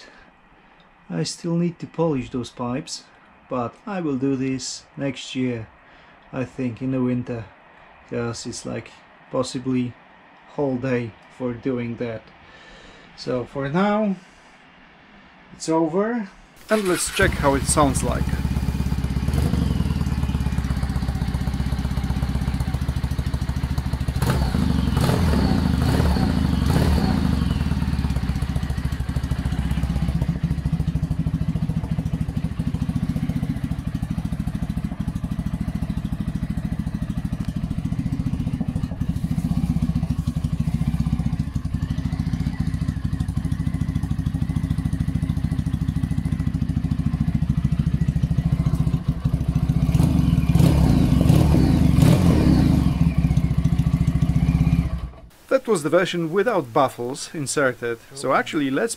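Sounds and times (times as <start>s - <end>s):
motorcycle engine revving: 16.6s - 55.3s
motorcycle engine idling: 16.7s - 55.3s.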